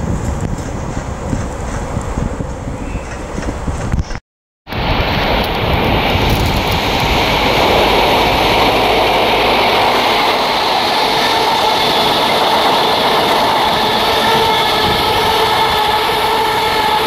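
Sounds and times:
train rushing past: 4.7 - 17.0.

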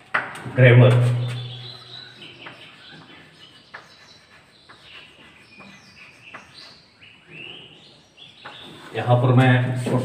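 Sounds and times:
chalk scraping on blackboard: 0.9 - 7.2
high chirping: 0.9 - 9.2
chalk tapping on blackboard: 2.4 - 6.9.

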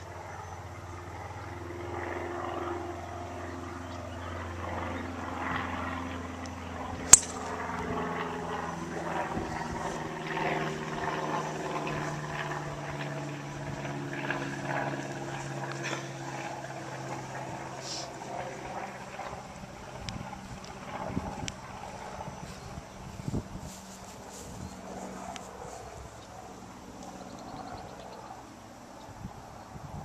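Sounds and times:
engine droning: 0.0 - 23.2
golf club striking ball: 7.1 - 7.6.

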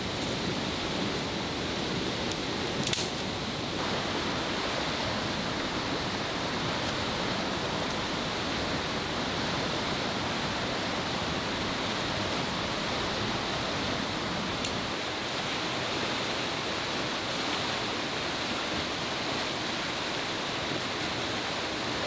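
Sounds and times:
river rushing: 0.0 - 22.0
branch snapping: 2.8 - 3.3.

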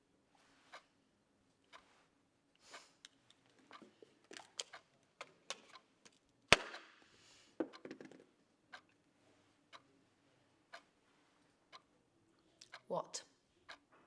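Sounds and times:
clock ticking: 7.6 - 7.9, 8.7 - 9.0, 9.7 - 9.9, 10.7 - 10.9, 11.7 - 11.9.

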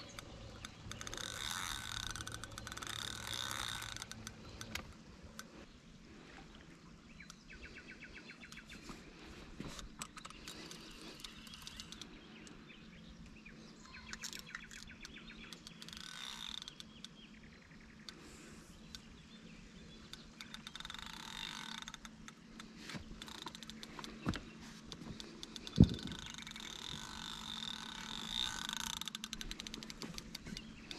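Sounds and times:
fishing reel clicking and buzzing: 0.0 - 5.5, 9.7 - 12.6, 14.0 - 17.2, 20.0 - 30.9.

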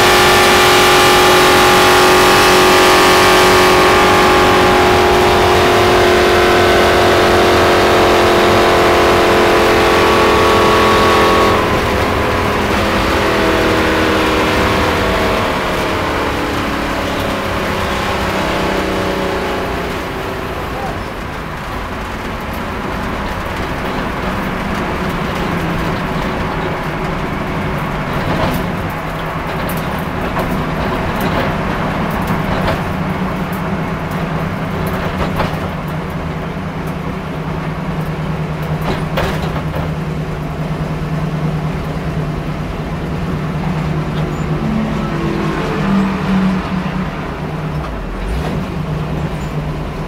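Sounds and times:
car engine running at low revs: 0.0 - 50.0
clicks and rattles from car: 20.0 - 44.6.

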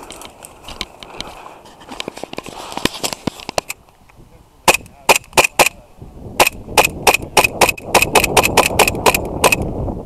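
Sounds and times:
airsoft pistol shots: 4.7 - 5.8, 6.4 - 9.6.

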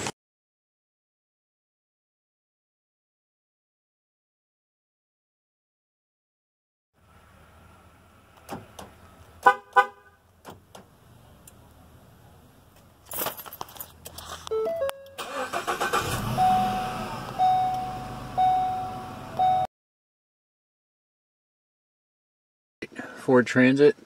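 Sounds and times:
van horn chirping: 9.4 - 10.2, 14.5 - 19.7
beeping: 14.5 - 19.7
engine cranking and running: 15.1 - 18.4.

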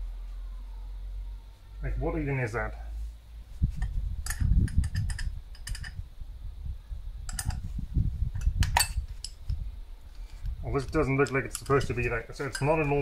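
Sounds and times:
low rumble of handling noise: 0.0 - 13.0
small parts clicking and clinking: 3.8 - 6.0, 7.2 - 7.6, 8.4 - 13.0.

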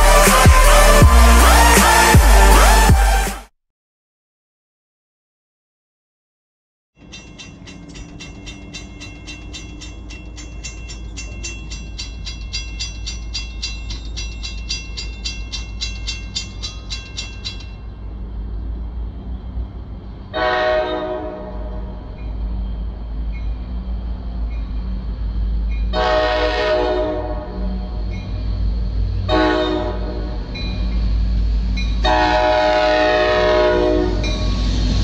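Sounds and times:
train rumble: 0.0 - 3.3, 7.0 - 35.0
crossing bells ringing: 7.0 - 18.2, 34.2 - 34.9
train horn blast: 20.3 - 22.0, 25.9 - 28.0, 29.3 - 30.5, 32.0 - 34.4.

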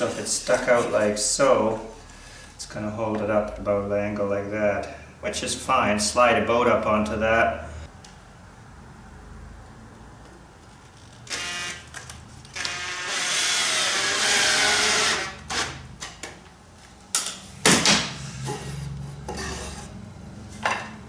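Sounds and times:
cordless drill whining into wood: 12.6 - 15.7
knocks of wood and tool: 17.6 - 18.2.

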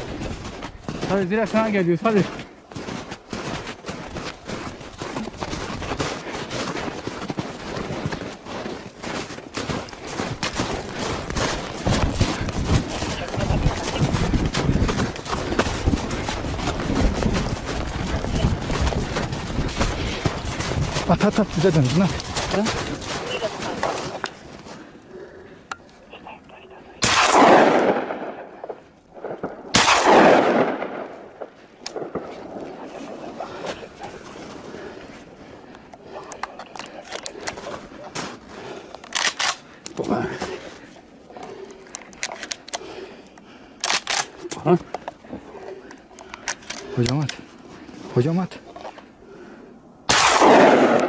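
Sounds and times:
footsteps crunching in snow: 0.0 - 24.9, 31.0 - 36.3, 36.9 - 39.0
gunshots echoing: 27.0 - 33.3, 50.1 - 51.0.

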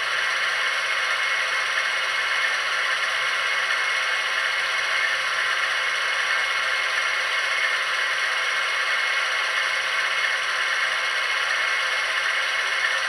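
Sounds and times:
model diesel engine idle hum: 0.0 - 13.0.

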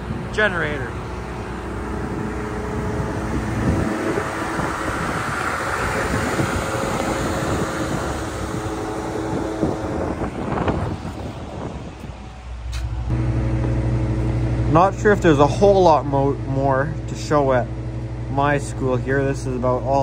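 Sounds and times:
wind blowing across microphone: 0.0 - 13.2
broad rushing sound: 0.0 - 15.4
steady low hum: 0.0 - 20.0.

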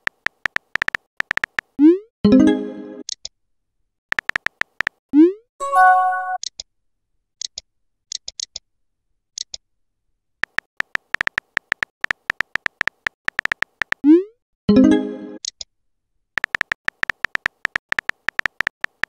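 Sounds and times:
keyboard tap ticks: 0.0 - 1.7, 4.1 - 5.0, 10.4 - 14.0, 16.4 - 19.0
brief chime: 5.6 - 6.4.

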